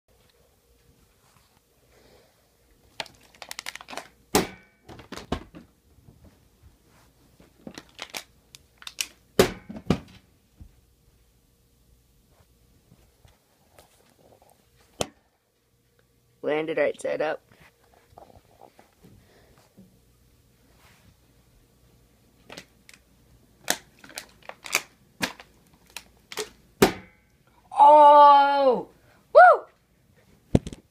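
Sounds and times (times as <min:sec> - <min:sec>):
person shouting: 0:27.7 - 0:29.7.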